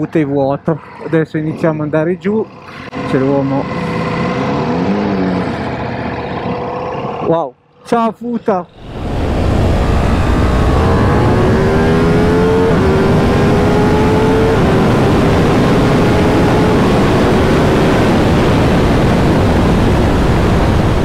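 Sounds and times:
motorcycle engine accelerating: 2.4 - 7.4, 8.7 - 21.0
wind rush: 8.7 - 21.0.

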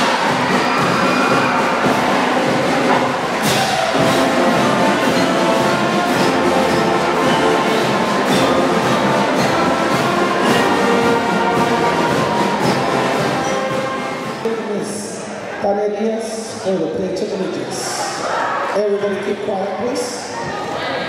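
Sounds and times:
brass band playing: 0.0 - 15.2.

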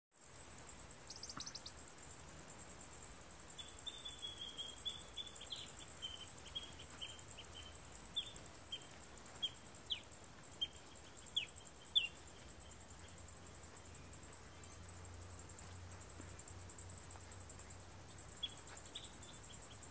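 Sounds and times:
insect chorus trilling: 0.2 - 19.9
bird chirping: 0.4 - 1.9, 3.5 - 15.0, 18.3 - 19.9.

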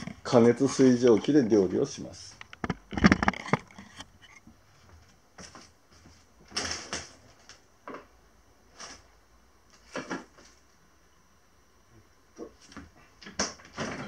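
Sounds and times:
faint steady hiss: 0.0 - 3.2, 3.8 - 14.0
knocks and clatters of handling: 2.3 - 4.1.

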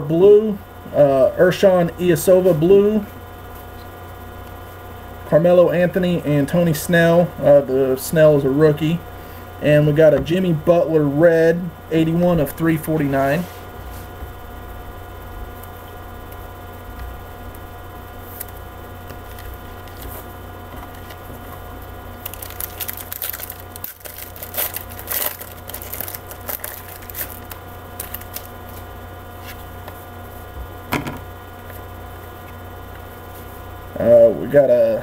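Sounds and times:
steady electrical hum: 0.0 - 35.0
trading cards shuffled by hand: 18.2 - 21.6, 22.2 - 30.0.

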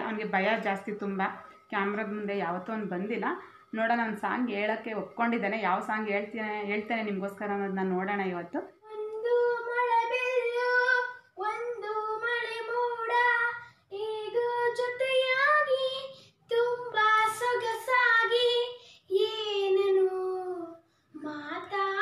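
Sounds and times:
boy singing unaccompanied: 8.8 - 22.0.

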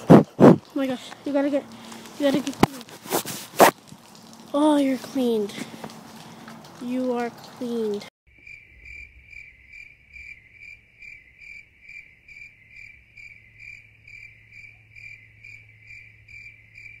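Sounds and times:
cricket chirping: 8.3 - 17.0.

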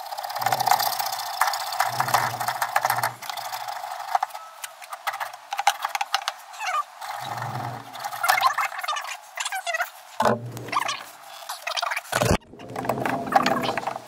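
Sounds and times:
plastic pipe fittings clicking: 0.1 - 6.4.

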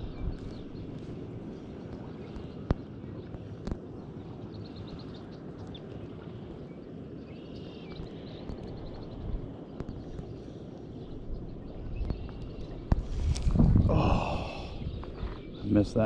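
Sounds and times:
wind and water rushing: 0.0 - 16.0
faint bird chirps: 6.8 - 12.9.

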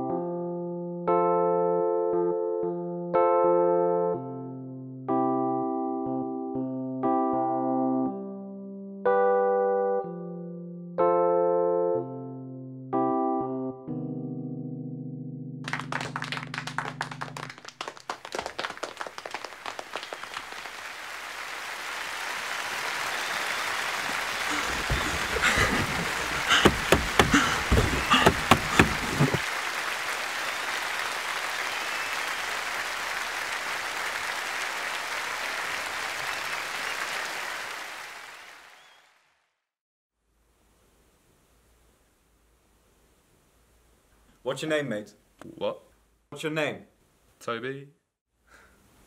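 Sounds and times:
audience applause: 15.7 - 39.2.

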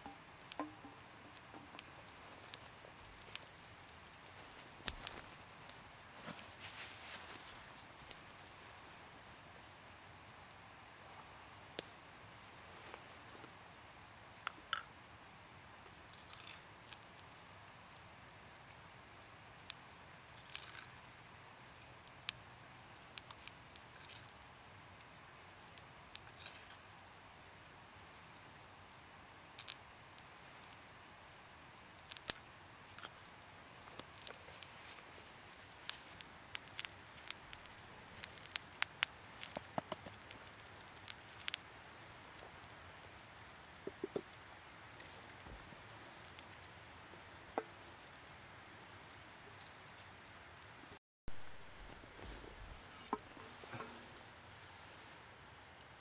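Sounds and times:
campfire crackling: 0.0 - 56.0.

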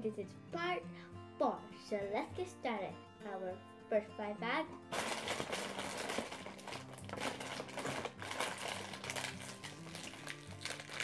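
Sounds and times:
background music: 0.0 - 11.0
plastic packets crinkling: 4.9 - 11.0.

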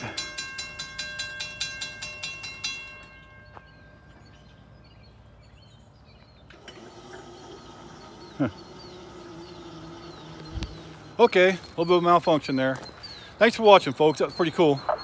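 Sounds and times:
railroad crossing bell dinging: 0.0 - 4.8.

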